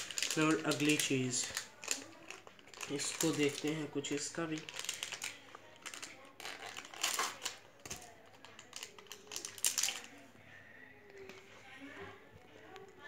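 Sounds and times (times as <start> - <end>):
plastic packet crinkling: 0.0 - 10.1.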